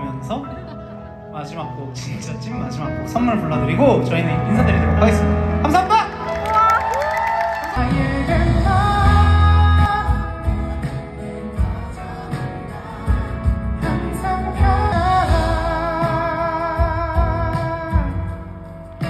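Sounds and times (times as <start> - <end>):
live pop ballad band: 0.0 - 19.0
man singing with vibrato: 7.7 - 18.5
audience singing along: 10.6 - 14.7.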